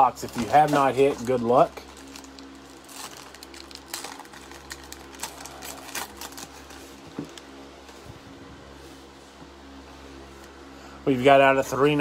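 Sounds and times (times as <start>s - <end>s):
foil wrapper crinkling and tearing: 0.0s - 7.5s.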